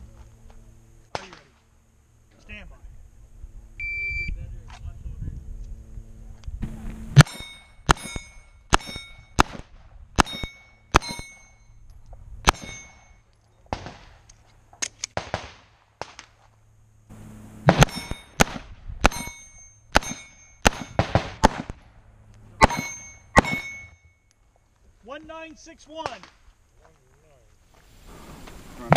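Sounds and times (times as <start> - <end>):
pistol shots: 1.1 - 1.5, 7.2 - 11.4, 12.4 - 13.0, 13.7 - 14.2, 15.0 - 16.3, 17.6 - 21.8, 22.6 - 24.0
steel plate clanging: 7.2 - 9.4, 10.2 - 11.7, 12.5 - 13.2, 17.7 - 18.4, 19.1 - 21.0, 22.6 - 24.2.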